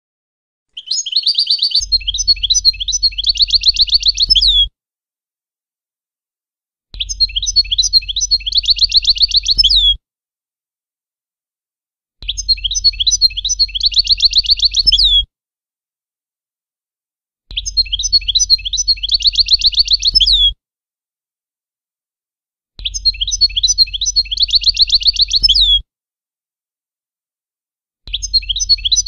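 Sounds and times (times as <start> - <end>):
goldfinch song with trill: 0.7 - 4.7, 7.0 - 10.0, 12.2 - 15.3, 17.5 - 20.6, 22.8 - 25.8, 28.1 - 29.0.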